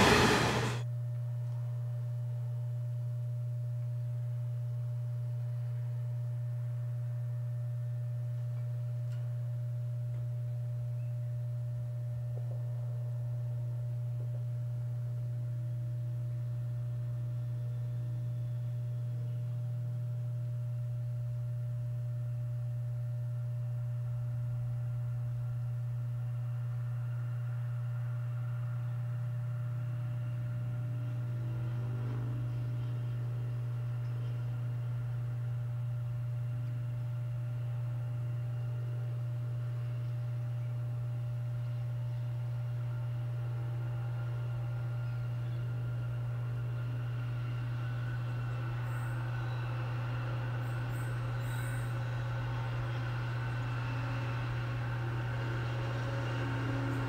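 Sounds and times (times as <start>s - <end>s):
distant diesel train approaching: 0.0s - 0.8s, 26.8s - 36.4s, 43.4s - 57.0s
steady low-pitched hum: 0.0s - 57.0s.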